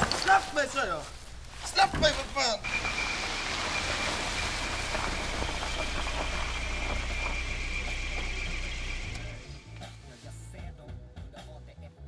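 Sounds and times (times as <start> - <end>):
car engine hum: 2.6 - 9.9
tyres hissing on wet street: 2.6 - 10.1.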